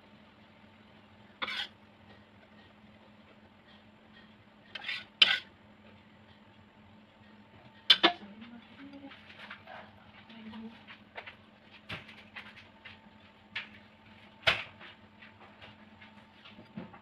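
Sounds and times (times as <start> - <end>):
spatula scraping wok: 1.2 - 5.6, 7.2 - 10.1.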